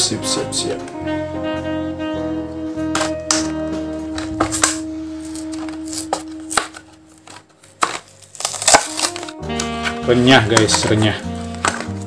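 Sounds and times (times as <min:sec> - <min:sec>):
plastic blister pack tearing: 0:03.0 - 0:12.0.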